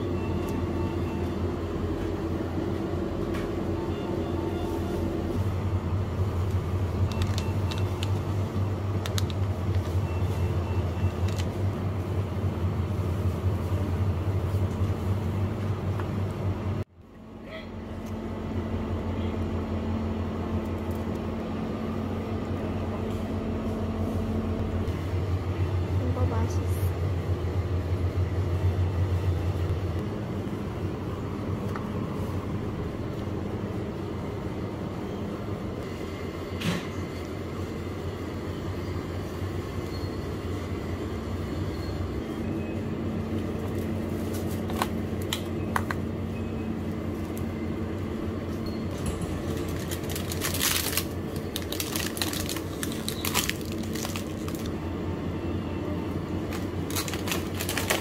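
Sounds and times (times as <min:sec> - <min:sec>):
freezer cases humming: 0:00.0 - 0:58.0
plastic packaging crinkling: 0:07.0 - 0:10.0, 0:48.9 - 0:54.7, 0:56.4 - 0:58.0.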